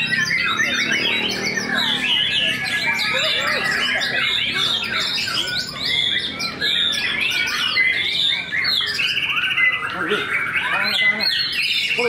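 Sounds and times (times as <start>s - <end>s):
birds singing whistles: 0.0s - 12.0s.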